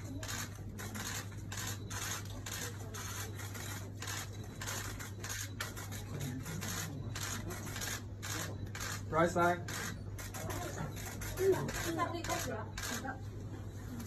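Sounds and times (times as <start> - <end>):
camera shutters clicking: 9.7 - 13.0.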